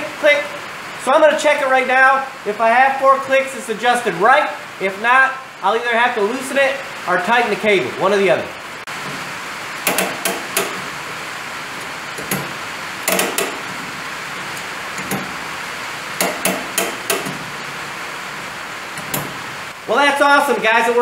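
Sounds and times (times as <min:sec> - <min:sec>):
steady rain hiss: 0:00.0 - 0:21.0
knocks and clatter: 0:08.9 - 0:15.5, 0:16.2 - 0:17.9, 0:18.9 - 0:19.4
brake lever ratchet clicks: 0:13.1 - 0:13.6.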